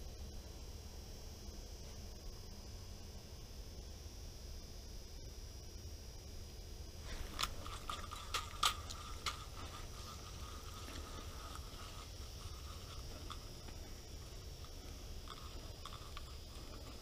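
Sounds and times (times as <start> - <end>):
reel whirring: 7.1 - 17.0.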